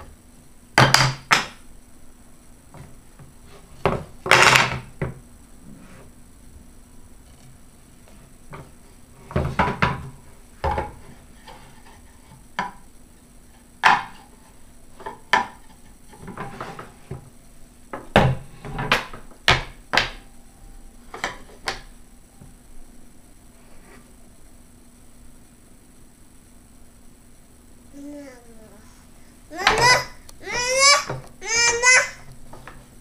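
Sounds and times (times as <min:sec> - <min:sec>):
wooden pieces knocking on table: 0:03.9 - 0:05.2, 0:18.0 - 0:20.2, 0:29.6 - 0:32.8.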